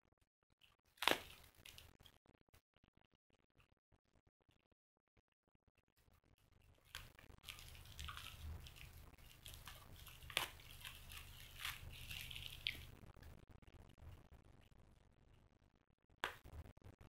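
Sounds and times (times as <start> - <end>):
plastic wrapper crinkling and tearing: 1.0 - 2.0, 6.8 - 13.0
wrapper snapping: 1.0 - 2.0, 6.9 - 13.0.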